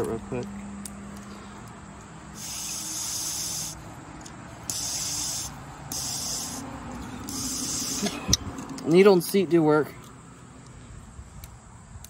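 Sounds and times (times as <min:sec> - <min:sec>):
person blowing puffs: 0:02.3 - 0:03.8, 0:04.7 - 0:08.2
air hissing through carburetor: 0:02.3 - 0:03.9, 0:04.6 - 0:08.4.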